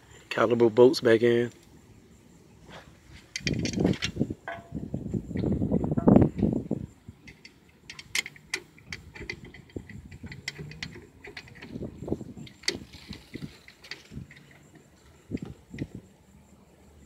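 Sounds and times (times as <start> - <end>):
metal bolts clicking and clinking: 3.2 - 6.5, 7.2 - 15.9.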